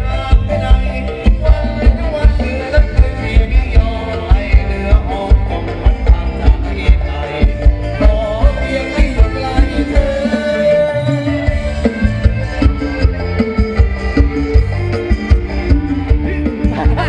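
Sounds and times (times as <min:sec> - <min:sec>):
person singing: 0:00.0 - 0:11.6, 0:15.7 - 0:17.0
drum and bass beat: 0:00.0 - 0:17.0.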